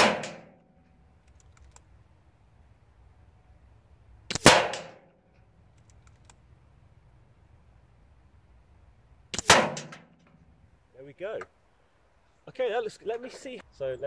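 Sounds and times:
air rifle shots: 0.0s - 0.6s, 4.3s - 5.1s, 9.3s - 10.2s.

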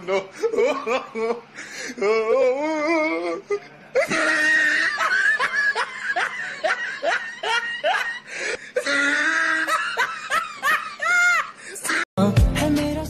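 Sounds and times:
person laughing loudly: 0.0s - 1.5s, 4.0s - 12.1s.

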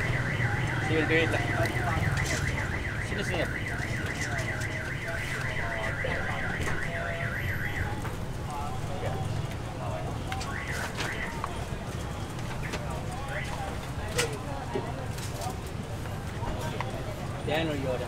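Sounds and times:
electronic alarm warbling: 0.0s - 7.9s.

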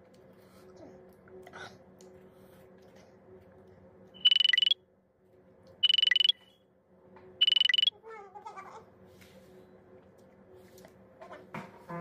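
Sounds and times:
electronic alarm buzzer beeping: 4.2s - 4.8s, 5.8s - 6.4s, 7.4s - 7.9s.

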